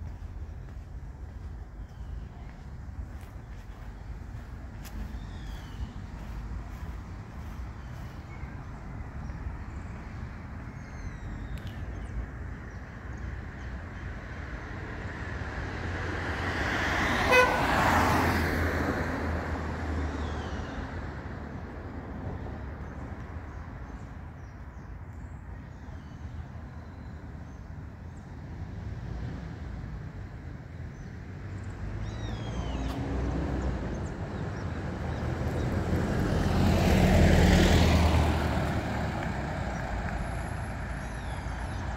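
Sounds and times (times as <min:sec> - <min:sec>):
cars passing: 0:00.0 - 0:24.7, 0:26.5 - 0:41.9
traffic hum: 0:00.0 - 0:41.9
car horn toot: 0:17.3 - 0:17.8.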